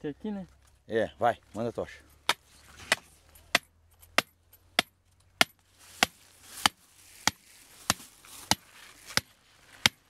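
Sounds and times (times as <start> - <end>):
sharp blows driving pipe into ground: 2.1 - 10.0.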